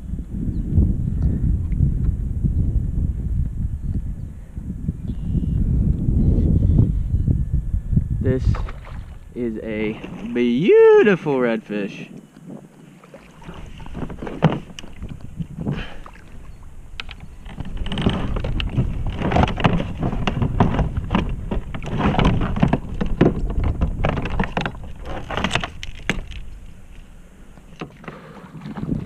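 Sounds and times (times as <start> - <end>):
wind rumbling on microphone: 0.0 - 29.0
water sloshing against kayak hull: 8.4 - 10.7, 12.1 - 29.0.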